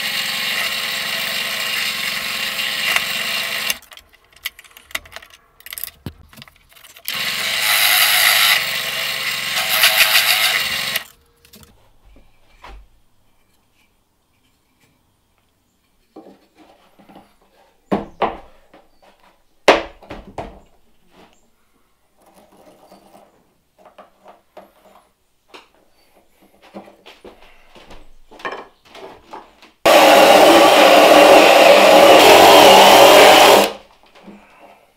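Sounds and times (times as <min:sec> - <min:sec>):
drill press boring into wood: 0:00.0 - 0:03.8, 0:07.1 - 0:11.1, 0:29.9 - 0:33.8.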